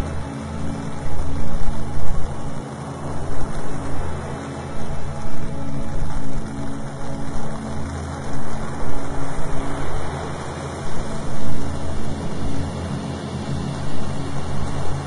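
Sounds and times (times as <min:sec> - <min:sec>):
low droning tones: 0:00.0 - 0:15.0.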